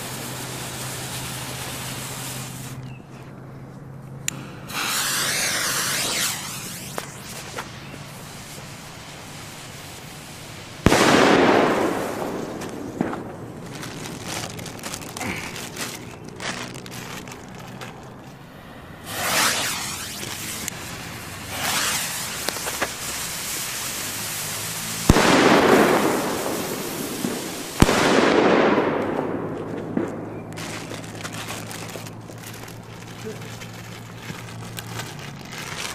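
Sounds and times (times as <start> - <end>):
firecracker bangs: 4.4 - 8.8, 10.7 - 16.2, 19.0 - 32.0.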